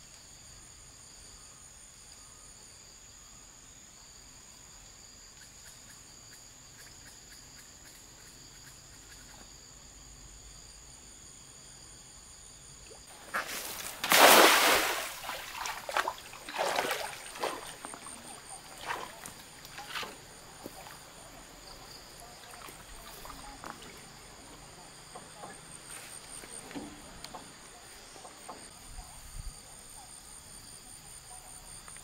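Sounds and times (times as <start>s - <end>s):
insect chirring: 5.0s - 28.8s
small water splashes: 12.8s - 24.3s
net splashing into water: 13.1s - 21.0s, 22.2s - 24.0s.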